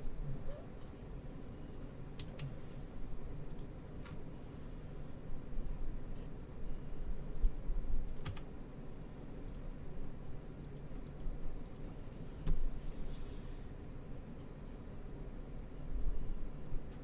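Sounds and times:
low steady hum: 0.0s - 17.0s
keyboard and mouse clicks: 2.2s - 2.6s, 3.5s - 4.2s, 7.3s - 8.5s, 9.4s - 9.8s, 10.6s - 11.9s.

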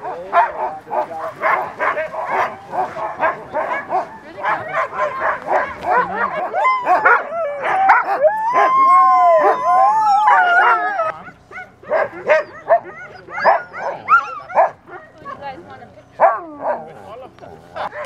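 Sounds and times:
dogs barking and yipping: 0.0s - 18.0s
dogs howling: 0.0s - 18.0s.

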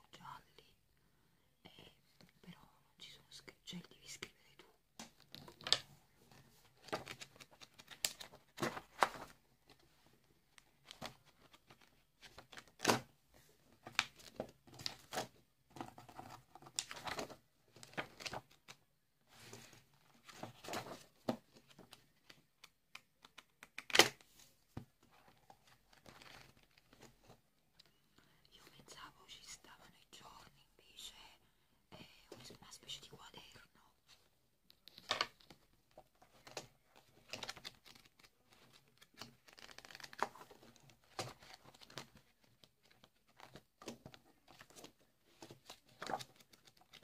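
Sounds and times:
paper pages rustling and turning: 5.2s - 27.4s, 34.7s - 47.0s.

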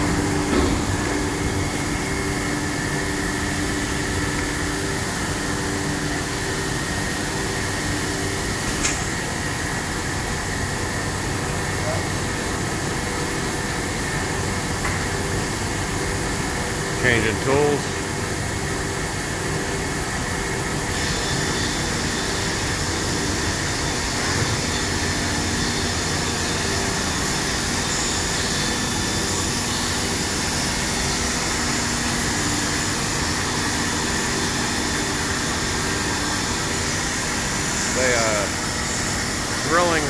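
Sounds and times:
router machine humming and whining: 20.6s - 40.0s.

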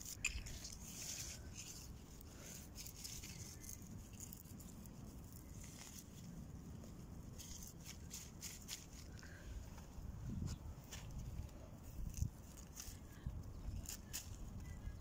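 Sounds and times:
leafy greens rustling and crackling: 0.0s - 9.8s, 10.5s - 15.0s.

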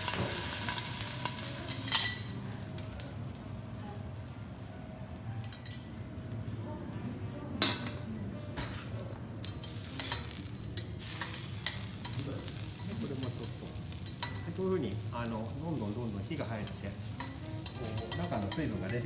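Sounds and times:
vegetables sizzling on griddle: 0.0s - 4.1s, 9.4s - 19.0s.

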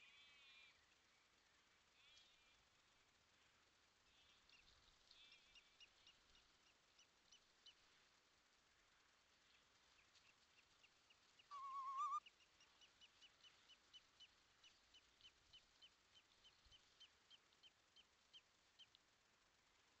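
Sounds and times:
short high bird chirps: 11.5s - 12.2s
quavering bird call: 11.5s - 12.3s.

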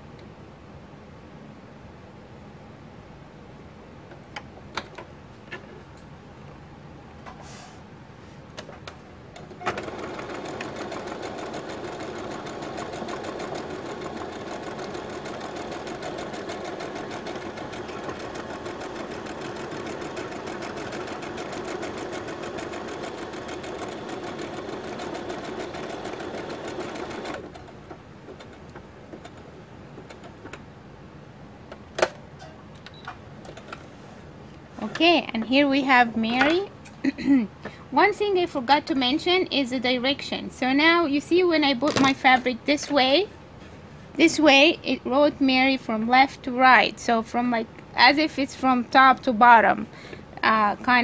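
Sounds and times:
sewing machine stitching: 9.5s - 29.4s.

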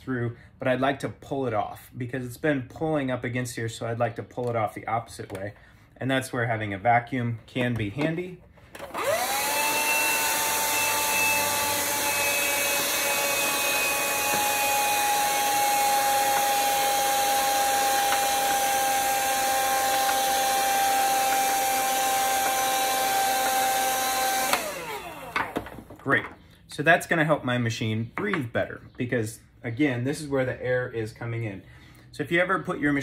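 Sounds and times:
handheld vacuum cleaner whining: 8.7s - 25.7s.

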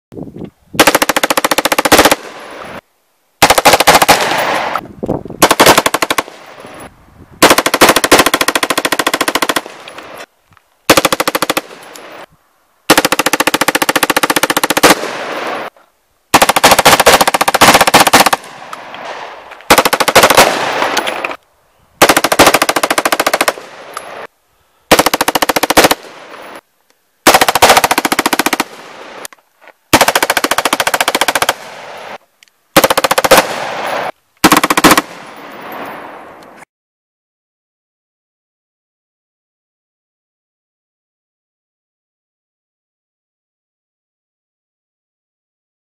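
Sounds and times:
automatic rifle bursts: 3.4s - 4.8s, 5.4s - 6.4s, 7.4s - 10.2s, 10.9s - 12.0s, 16.3s - 18.5s, 19.7s - 21.4s, 22.0s - 24.2s, 27.2s - 28.8s, 32.8s - 35.2s
gunshot echo: 3.4s - 4.8s, 16.4s - 21.4s.

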